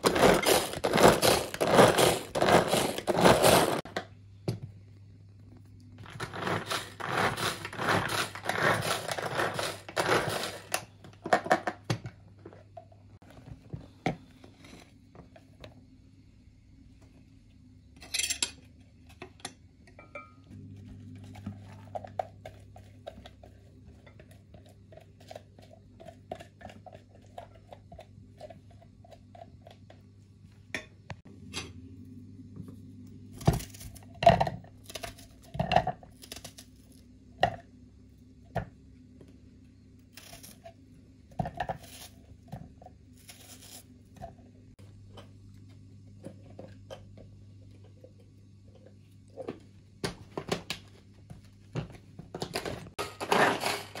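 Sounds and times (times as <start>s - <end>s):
pulsing appliance hum: 0.0s - 54.0s
glass bowl and utensils clinking: 20.0s - 20.5s.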